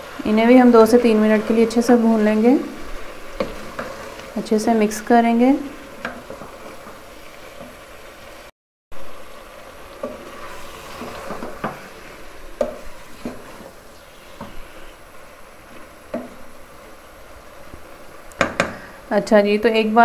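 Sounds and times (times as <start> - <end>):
frying sizzle: 0.0 - 20.0
spoon scraping and knocking pot: 12.6 - 13.7.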